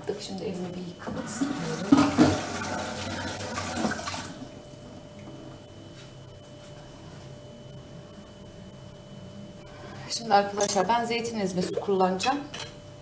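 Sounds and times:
faint steady hum: 0:00.0 - 0:13.0
tap water running: 0:01.1 - 0:05.3.

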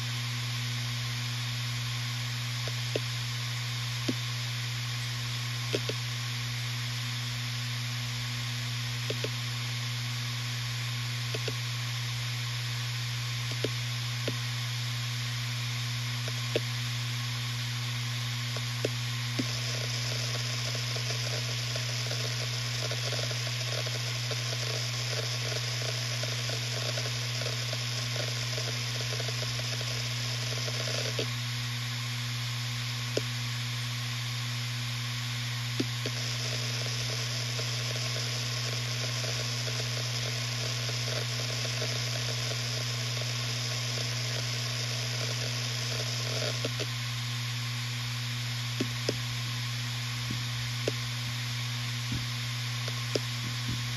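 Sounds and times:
hard drive spinning hum: 0:00.0 - 0:53.9
hard drive heads seeking chatter: 0:02.5 - 0:03.4, 0:05.5 - 0:06.2, 0:08.7 - 0:09.6, 0:11.1 - 0:11.7, 0:13.3 - 0:14.6, 0:16.0 - 0:16.9, 0:18.3 - 0:31.5, 0:32.9 - 0:33.5, 0:35.6 - 0:47.0, 0:48.6 - 0:53.9.

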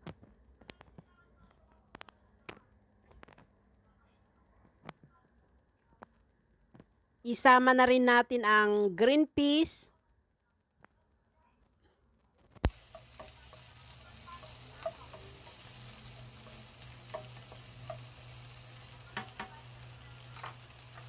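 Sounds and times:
food sizzling in a frying pan: 0:12.6 - 0:21.0
spatula scraping and tapping pan: 0:12.6 - 0:21.0.

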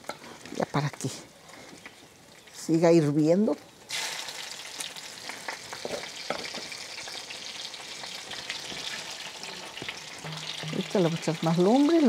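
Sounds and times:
sauce sizzling in hot fat: 0:03.8 - 0:12.0
wooden spoon knocking pot: 0:10.2 - 0:11.0.

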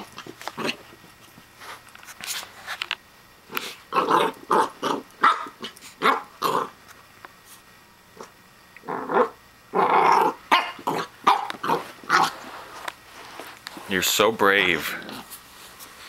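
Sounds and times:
puppy barking: 0:04.0 - 0:06.7, 0:10.0 - 0:12.4.

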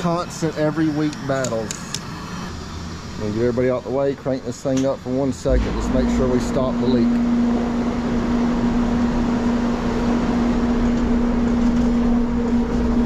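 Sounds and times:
hydraulic system humming: 0:00.0 - 0:13.0.

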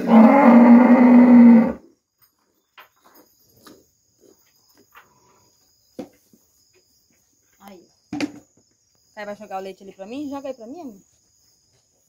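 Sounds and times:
cow mooing: 0:00.0 - 0:01.8
crickets chirping: 0:00.0 - 0:12.0.

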